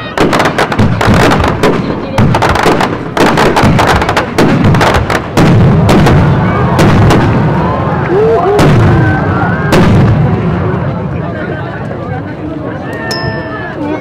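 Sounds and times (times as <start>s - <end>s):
firework shells booming: 0.0s - 7.6s.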